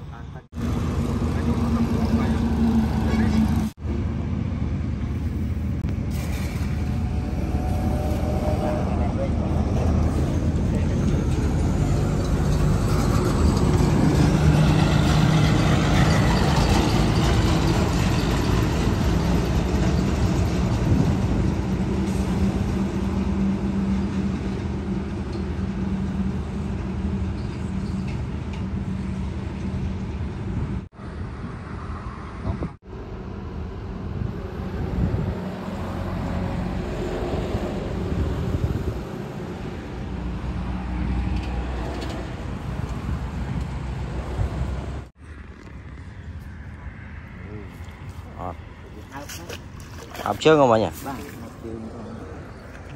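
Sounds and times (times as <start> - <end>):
road traffic noise: 0.0 - 52.9
heavy truck passing: 0.5 - 45.4.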